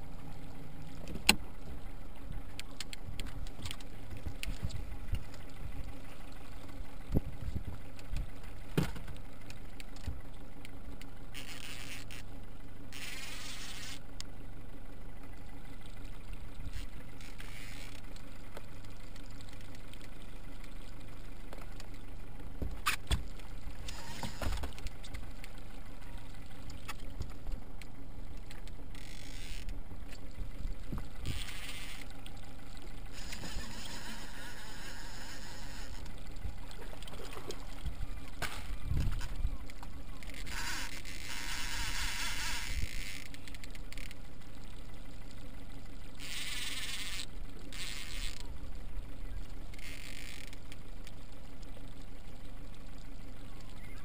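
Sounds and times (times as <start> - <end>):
fishing reel drag buzzing: 11.3 - 14.2, 16.6 - 18.2, 23.7 - 24.8, 28.9 - 30.2, 31.1 - 32.1, 32.9 - 36.3, 40.2 - 44.3, 46.0 - 48.6, 49.6 - 50.9.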